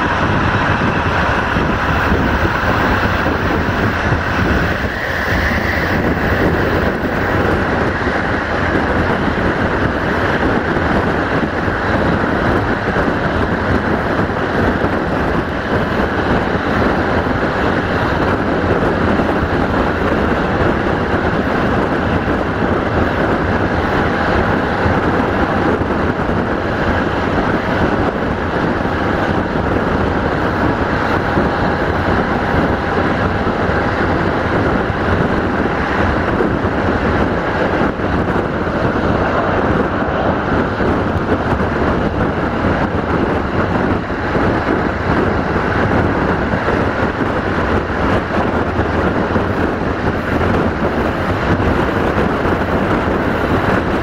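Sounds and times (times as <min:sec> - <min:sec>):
rush of wind: 0:00.0 - 0:54.0
train wheels rumbling on rails: 0:00.0 - 0:54.0.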